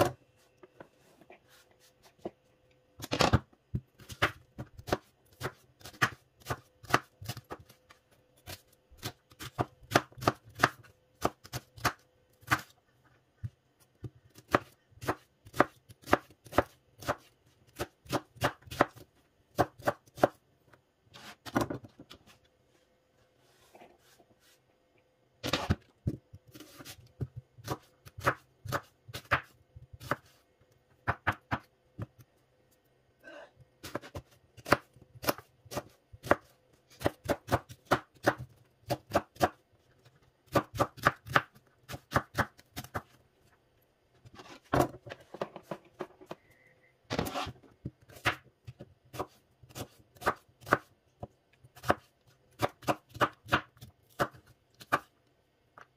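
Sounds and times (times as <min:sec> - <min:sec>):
knife chopping on cutting board: 0:08.5 - 0:12.7, 0:14.3 - 0:20.4, 0:25.5 - 0:30.3, 0:33.8 - 0:39.6, 0:40.5 - 0:43.1, 0:47.1 - 0:50.9, 0:51.8 - 0:55.1.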